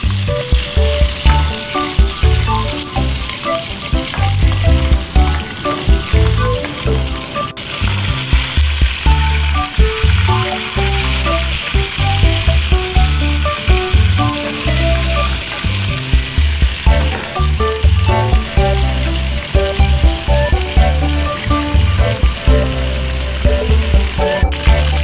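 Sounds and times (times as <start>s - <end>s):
background music with strong bass: 0.0s - 25.0s
chicken frying in hot oil: 0.0s - 25.0s.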